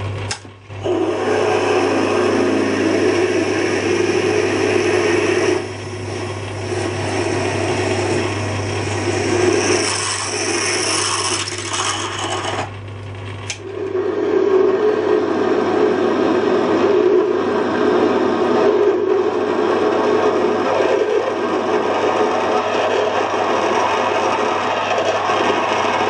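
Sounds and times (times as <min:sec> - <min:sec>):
lathe humming: 0:00.1 - 0:26.0
drill scraping into metal: 0:09.1 - 0:12.7.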